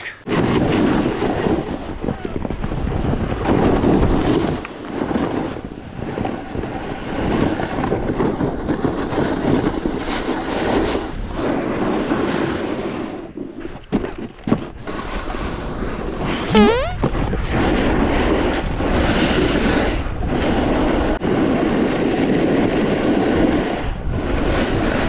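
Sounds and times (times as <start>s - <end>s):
snowboard scraping over snow: 0.3s - 1.9s
wind buffeting microphone: 0.3s - 4.9s.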